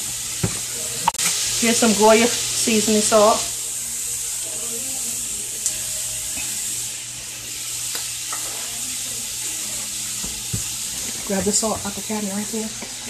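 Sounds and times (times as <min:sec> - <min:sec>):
vegetables sizzling in a pot: 0:00.0 - 0:13.0.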